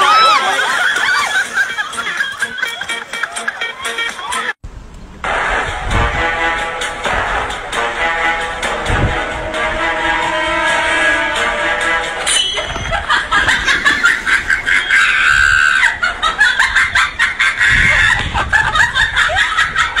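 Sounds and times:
high-pitched cackling laughter: 0.1 - 4.6, 12.6 - 20.0.

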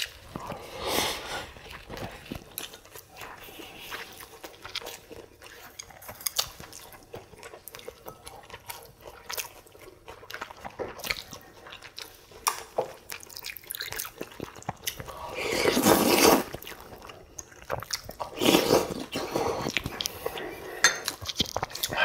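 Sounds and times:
chewing with wet smacks: 0.0 - 0.8, 1.4 - 22.0
wet slurps of soup: 15.1 - 16.6, 18.3 - 20.8.

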